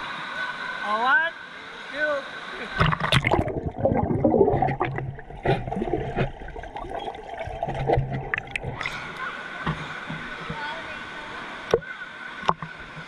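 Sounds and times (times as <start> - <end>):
pool water splashing: 0.4 - 13.0
underwater gurgling: 2.7 - 13.0.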